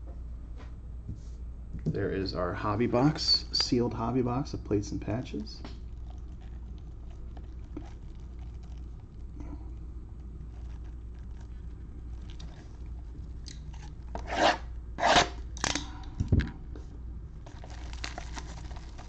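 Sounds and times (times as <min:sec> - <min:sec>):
plastic wrap crinkling: 0:10.2 - 0:14.1, 0:17.4 - 0:19.0.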